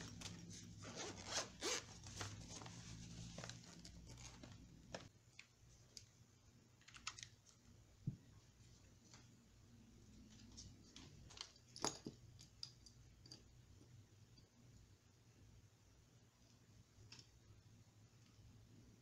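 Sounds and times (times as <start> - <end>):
plastic clicks and rustles: 6.8 - 7.6.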